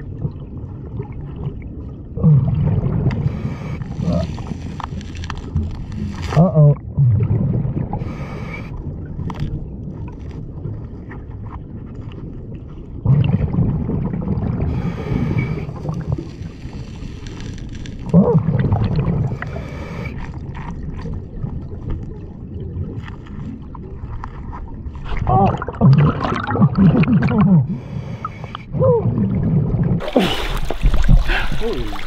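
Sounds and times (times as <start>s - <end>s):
exhaled bubbles gurgling: 0.0s - 17.0s, 17.9s - 32.0s
low rumble of water: 0.0s - 32.0s.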